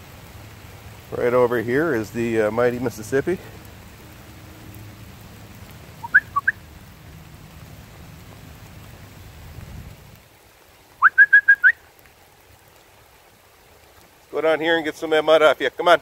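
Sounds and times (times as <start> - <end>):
short whistled notes: 6.0 - 6.6, 11.0 - 11.8.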